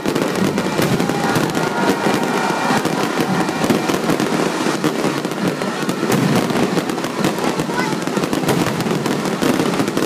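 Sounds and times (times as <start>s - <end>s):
fireworks crackling: 0.0s - 10.0s.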